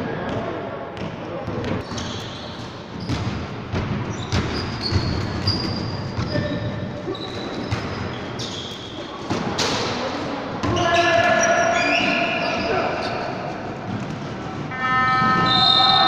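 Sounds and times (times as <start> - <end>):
sneakers squeaking: 0.3 - 16.0
basketball bouncing on wood floor: 2.9 - 8.2.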